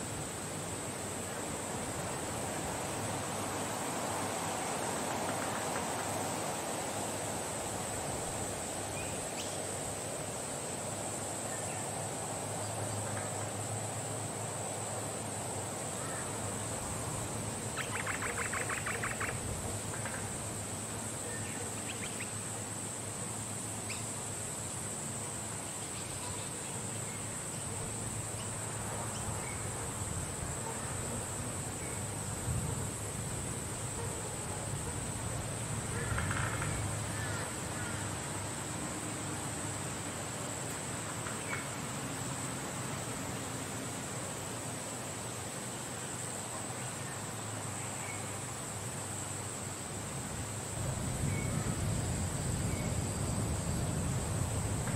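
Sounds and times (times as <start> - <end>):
wind: 0.0 - 54.9
rapid bird trill: 17.8 - 19.4.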